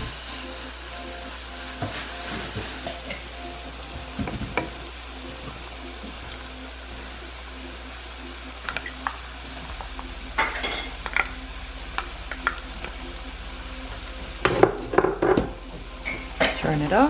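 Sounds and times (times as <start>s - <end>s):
beef and onions sizzling: 0.0s - 17.0s
wooden spatula scraping a pan: 1.8s - 3.3s.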